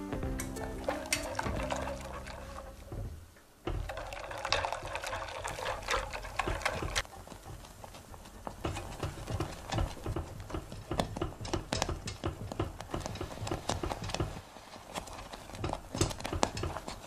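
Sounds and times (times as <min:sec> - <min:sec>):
background music: 0:00.0 - 0:03.2
whisk beating custard in saucepan: 0:00.6 - 0:03.0, 0:03.7 - 0:17.0.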